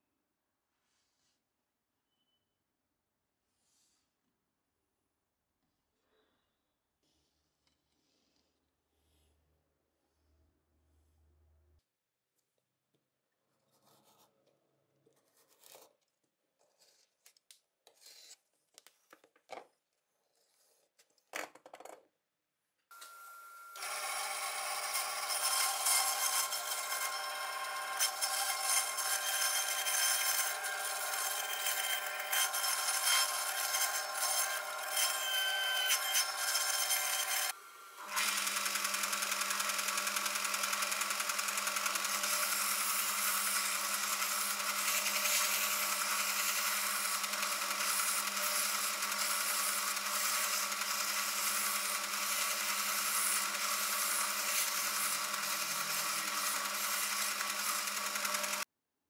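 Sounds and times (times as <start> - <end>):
band saw running: 22.9 - 58.6
belt sander running: 23.8 - 35.2, 36.2 - 58.6.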